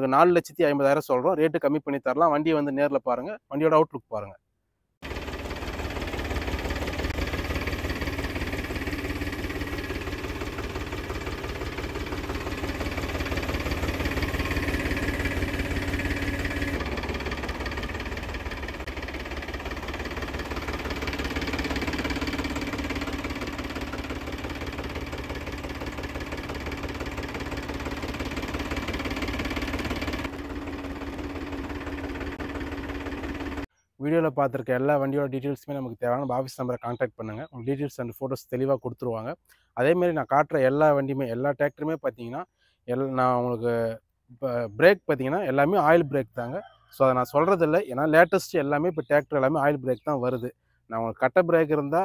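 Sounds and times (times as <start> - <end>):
tractor diesel engine idling: 5.0 - 33.7.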